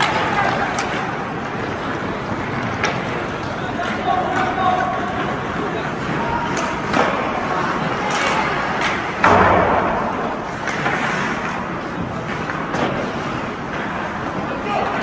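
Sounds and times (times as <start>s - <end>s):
hockey sticks knocking puck: 0.0s - 15.0s
loud bang on boards: 9.2s - 10.5s.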